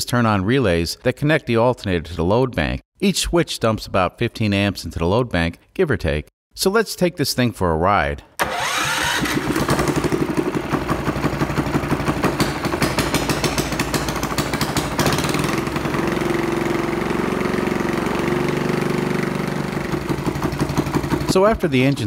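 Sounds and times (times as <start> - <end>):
small engine idling: 8.4 - 21.4.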